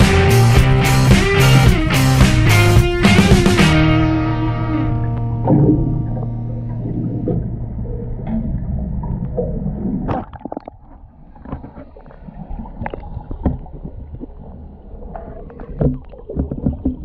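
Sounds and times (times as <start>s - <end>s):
background music: 0.0s - 8.4s
water gurgling underwater: 4.9s - 17.0s.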